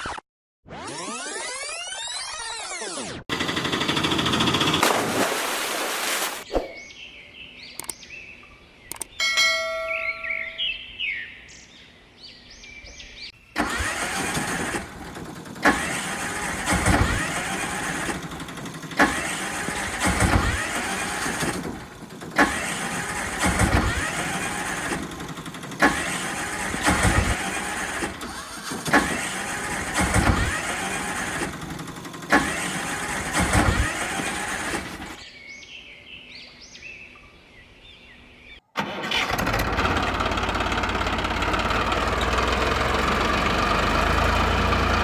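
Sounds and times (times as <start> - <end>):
short high chirps: 8.9 - 10.9
vehicle engine surging: 13.6 - 35.2, 38.8 - 45.0.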